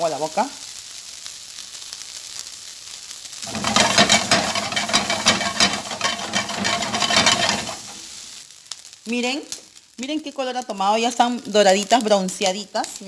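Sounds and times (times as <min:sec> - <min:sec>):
food sizzling in a frying pan: 0:00.0 - 0:13.0
scraping and clattering in a pan: 0:03.4 - 0:08.3.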